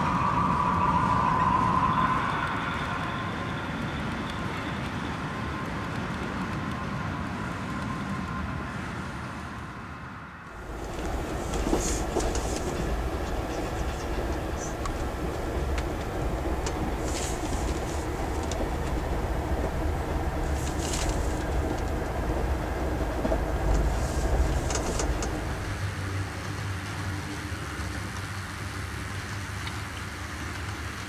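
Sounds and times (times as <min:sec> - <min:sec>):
deep rumble with light clicks: 0:10.5 - 0:31.0
model train wheels rattling on rail: 0:10.6 - 0:27.0.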